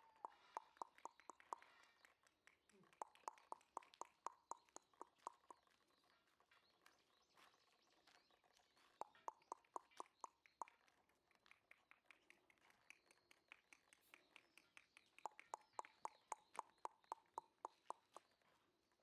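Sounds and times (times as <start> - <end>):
tongue clicks: 0.0 - 5.8, 8.8 - 18.4.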